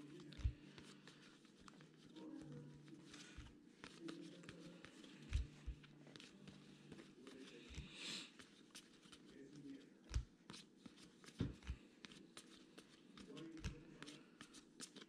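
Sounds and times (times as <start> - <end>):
trading cards flicking and sliding: 3.0 - 9.3, 10.0 - 15.0.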